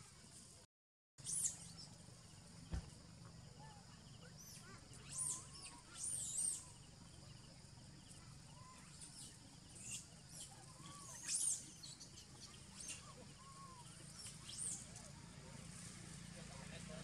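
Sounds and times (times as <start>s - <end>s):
animal chirps and whistled calls: 1.2s - 1.9s, 3.6s - 15.3s
low background hum: 1.2s - 17.0s.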